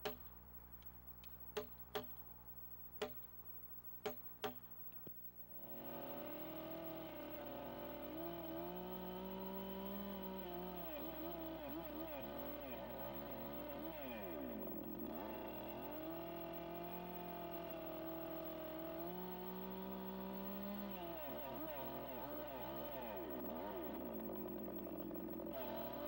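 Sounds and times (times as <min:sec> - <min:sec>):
chainsaw cutting timber: 0:05.6 - 0:26.0.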